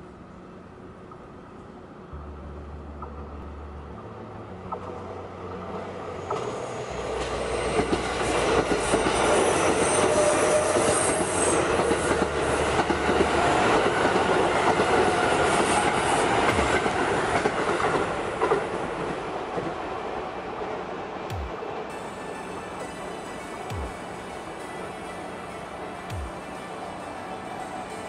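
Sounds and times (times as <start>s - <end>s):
train wheels rumbling on rails: 4.6s - 25.2s.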